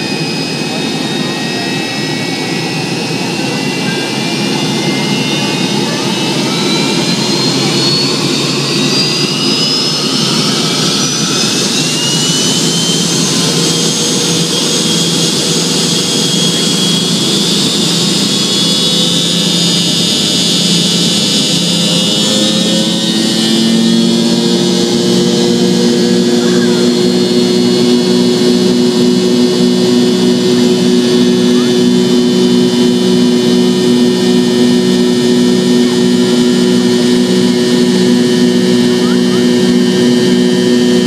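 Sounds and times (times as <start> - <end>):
jet engines spooling up: 0.0 - 41.0
rising engine whine: 0.0 - 41.0.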